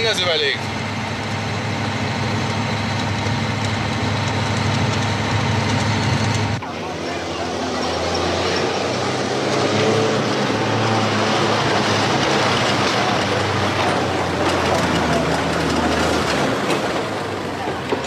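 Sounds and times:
road and tyre noise: 0:00.0 - 0:18.0
truck engine driving past: 0:00.0 - 0:18.0.

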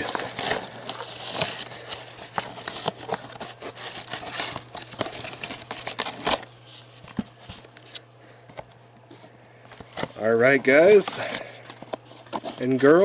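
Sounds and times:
cardboard box being torn open: 0:00.0 - 0:06.5
packaging crinkling: 0:00.0 - 0:08.3.

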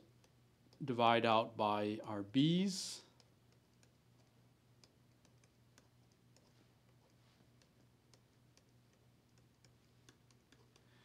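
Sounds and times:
faint low hum: 0:00.0 - 0:11.0
stylus tapping on tablet: 0:03.2 - 0:10.9.

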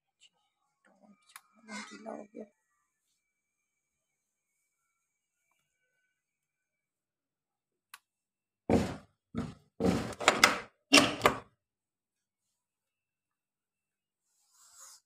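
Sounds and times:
wooden door thudding and knocking: 0:08.7 - 0:11.5.

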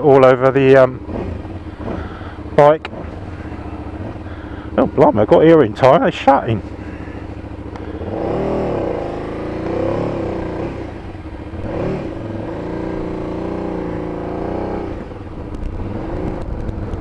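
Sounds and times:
motorcycle engine revving: 0:00.0 - 0:17.0
wind rushing over microphone: 0:14.8 - 0:17.0.

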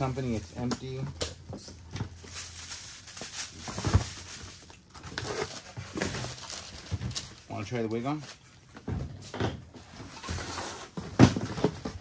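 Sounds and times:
tissue paper rustling: 0:02.1 - 0:06.9.

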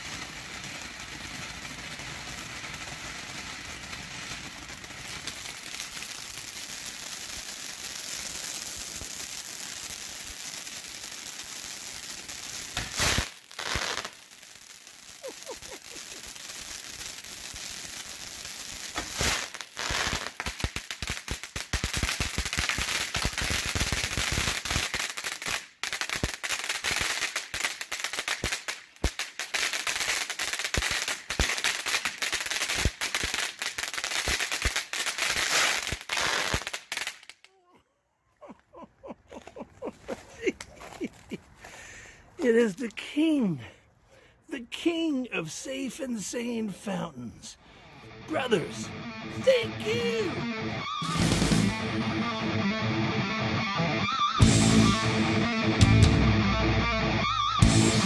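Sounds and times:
firework fountain hissing: 0:00.0 - 0:26.0, 0:48.3 - 0:52.0
firework bursts: 0:00.0 - 0:37.5, 0:44.5 - 0:52.4
firework crackling: 0:00.0 - 0:37.6, 0:39.1 - 0:43.6, 0:44.5 - 0:52.6, 0:54.0 - 0:55.5.

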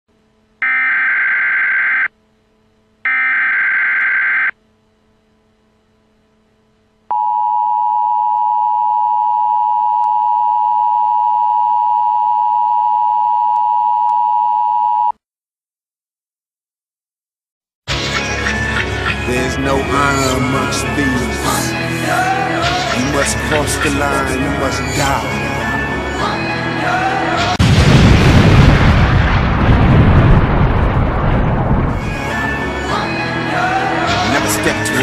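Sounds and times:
buzzing electronic tones: 0:00.6 - 0:07.4.

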